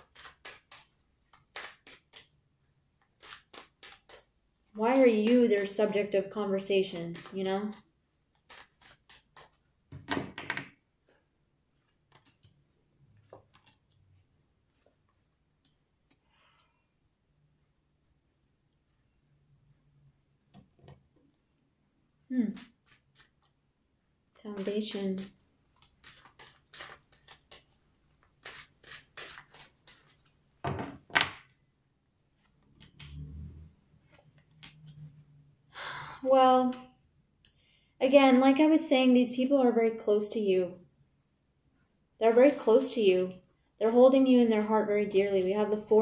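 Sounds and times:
cards being shuffled: 0:00.0 - 0:02.4, 0:03.0 - 0:09.6, 0:11.8 - 0:12.6, 0:13.2 - 0:14.1, 0:22.3 - 0:23.6, 0:24.4 - 0:30.5, 0:34.1 - 0:35.0.

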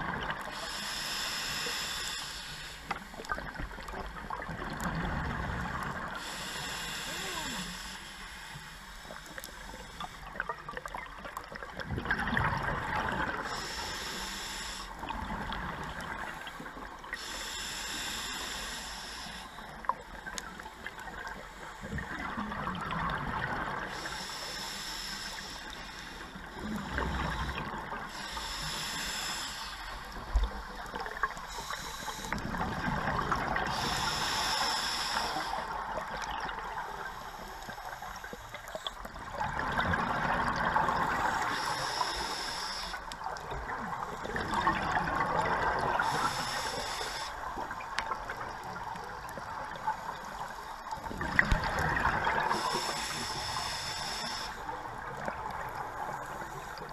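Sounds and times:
regulator breathing hiss: 0:00.4 - 0:03.7, 0:05.9 - 0:10.4, 0:13.3 - 0:15.1, 0:16.2 - 0:22.2, 0:23.9 - 0:32.5, 0:33.6 - 0:36.3, 0:36.9 - 0:38.9, 0:40.9 - 0:43.5, 0:45.8 - 0:48.1, 0:49.3 - 0:56.9.

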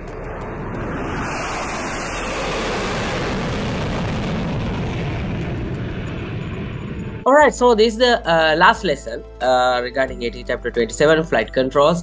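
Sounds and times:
jet airplane flying past: 0:00.0 - 0:07.3.

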